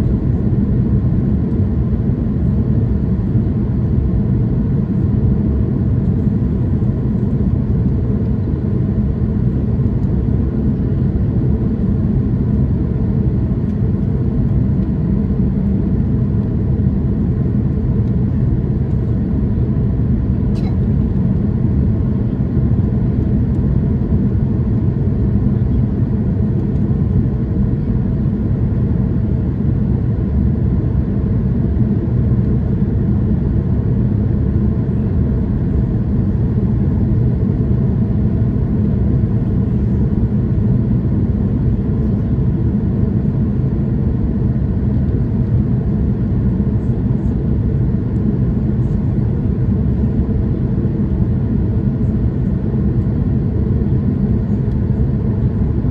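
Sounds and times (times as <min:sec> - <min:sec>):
airliner cabin engine rumble: 0:00.0 - 0:55.9.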